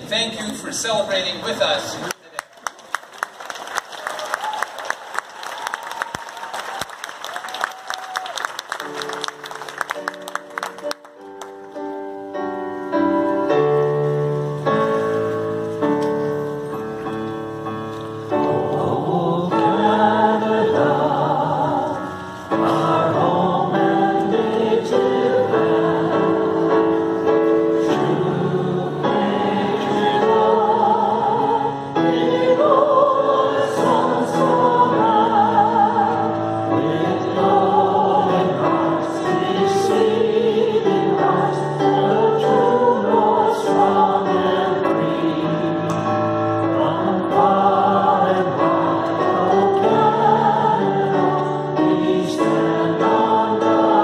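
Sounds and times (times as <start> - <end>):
choir singing: 18.3 - 54.0.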